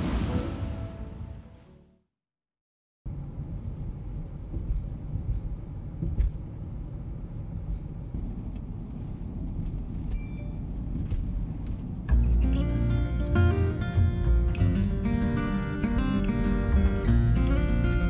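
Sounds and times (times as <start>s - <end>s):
music: 12.1s - 18.0s.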